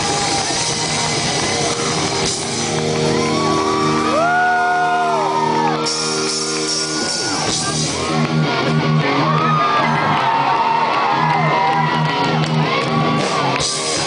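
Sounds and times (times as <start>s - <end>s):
distorted guitar chord: 0.0s - 9.3s
live rock band playing: 0.0s - 14.0s
high shouts and whoops: 2.9s - 7.8s, 8.4s - 13.9s.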